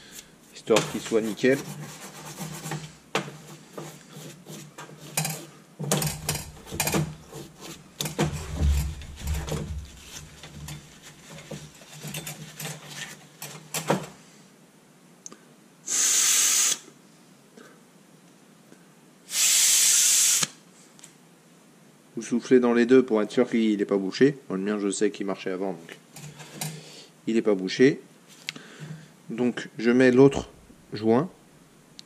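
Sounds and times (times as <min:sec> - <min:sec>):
brush scrubbing metal: 0:00.0 - 0:13.3
rag handling: 0:00.1 - 0:14.1
short loud hiss: 0:15.8 - 0:16.9, 0:19.3 - 0:20.6.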